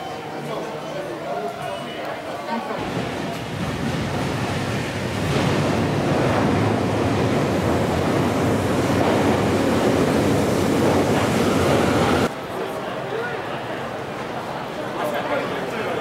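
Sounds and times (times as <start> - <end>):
train wheel and air rush: 2.8 - 12.3.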